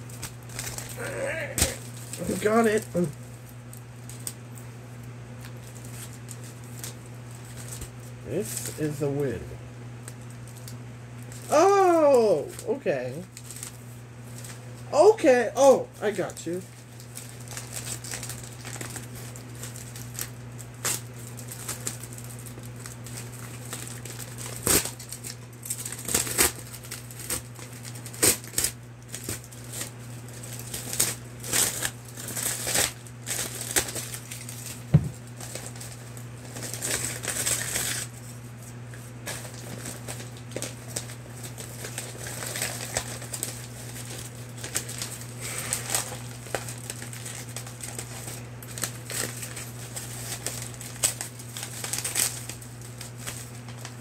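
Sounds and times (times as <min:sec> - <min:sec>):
packaging rustling and crinkling: 0:00.0 - 0:09.0, 0:13.3 - 0:14.8, 0:16.1 - 0:54.0
steady low hum: 0:00.0 - 0:54.0.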